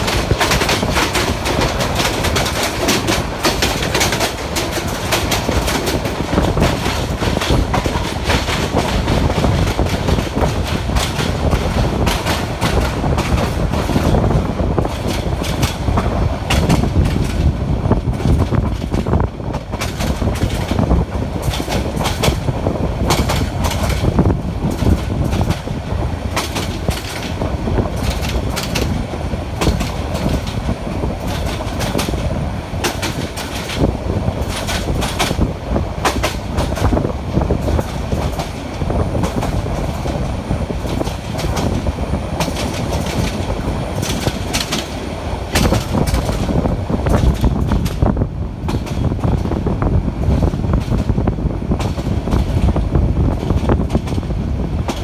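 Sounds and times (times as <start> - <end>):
clickety-clack over rail joints: 0.0 - 55.0
train wheels rumbling on track: 0.0 - 55.0.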